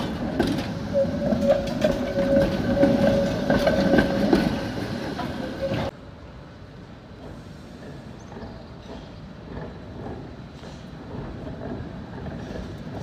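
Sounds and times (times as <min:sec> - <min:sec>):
wheels clicking over rails: 0:00.0 - 0:05.9
tram whining: 0:00.0 - 0:13.0.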